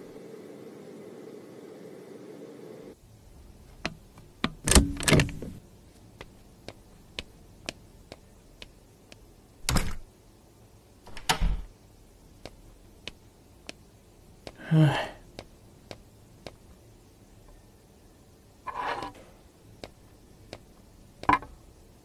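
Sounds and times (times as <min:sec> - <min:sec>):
faint regular ticks: 0:06.2 - 0:09.3, 0:12.4 - 0:14.6, 0:15.3 - 0:16.7, 0:19.7 - 0:21.3
door thuds: 0:11.1 - 0:11.7.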